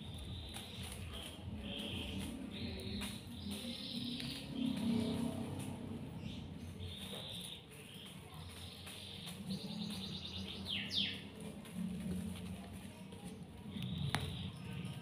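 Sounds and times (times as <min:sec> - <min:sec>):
high chirping and trilling calls: 0:00.0 - 0:11.5.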